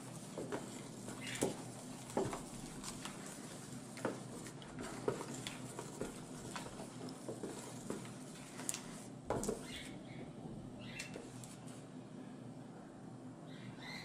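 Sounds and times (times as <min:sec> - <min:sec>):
spatula stirring slime: 0:00.0 - 0:10.0.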